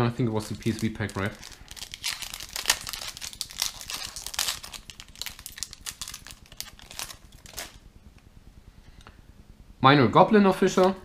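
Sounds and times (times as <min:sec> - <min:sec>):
foil wrapper crinkling: 0:00.3 - 0:07.8.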